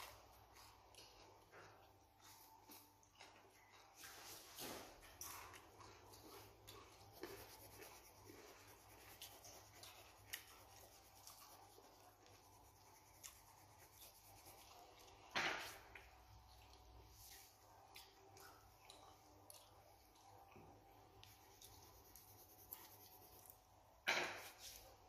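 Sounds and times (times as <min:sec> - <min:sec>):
pencil scratching on paper: 0:06.4 - 0:15.6, 0:21.3 - 0:23.5.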